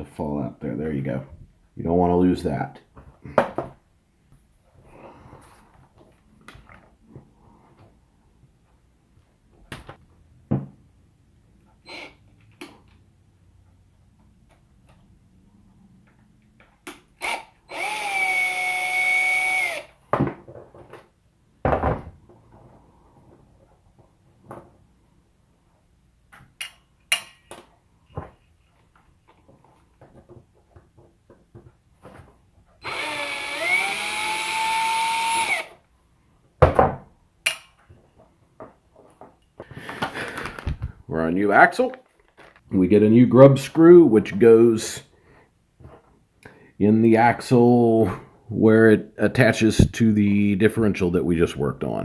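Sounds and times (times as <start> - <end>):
cordless drill whining: 11.8 - 12.2, 17.2 - 19.9, 32.8 - 35.8.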